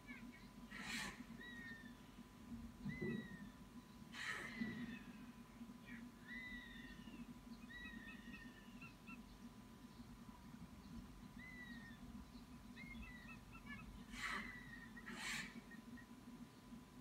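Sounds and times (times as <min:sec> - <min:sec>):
young raptors peeping: 0:00.0 - 0:16.8
young raptors whistled calls: 0:00.2 - 0:02.0, 0:02.8 - 0:09.3, 0:11.3 - 0:12.1, 0:12.7 - 0:16.1
loud rasping call: 0:13.0 - 0:15.8.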